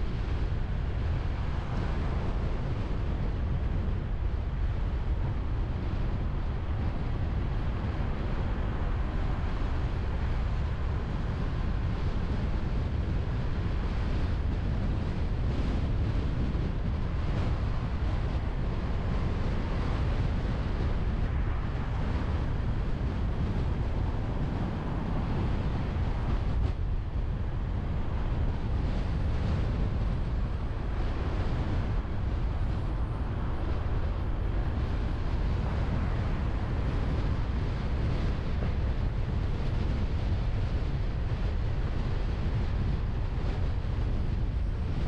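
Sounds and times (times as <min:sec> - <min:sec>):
wind buffeting microphone: 0:00.0 - 0:45.0.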